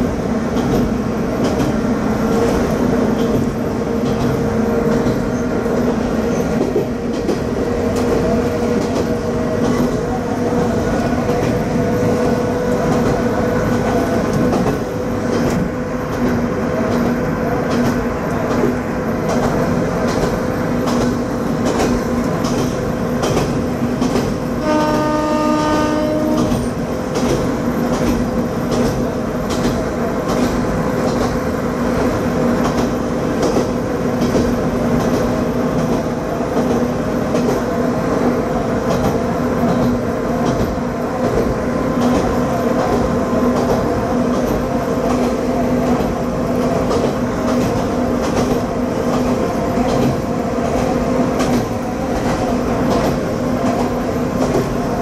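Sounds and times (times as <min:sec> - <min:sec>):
train horn: 0:24.6 - 0:26.8.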